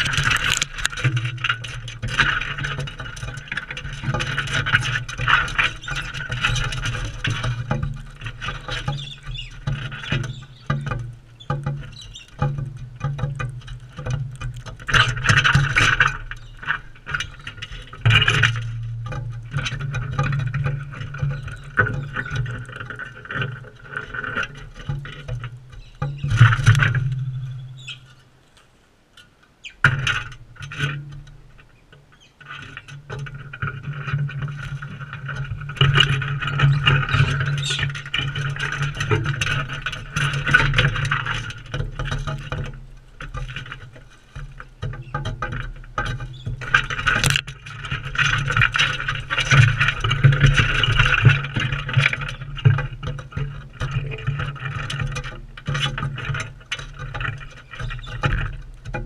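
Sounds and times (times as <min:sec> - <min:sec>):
birds pecking and scratching: 0:00.0 - 0:59.0
birds screeching: 0:08.8 - 0:12.4, 0:27.2 - 0:28.3, 0:29.6 - 0:29.8, 0:32.1 - 0:32.4, 0:37.1 - 0:37.9.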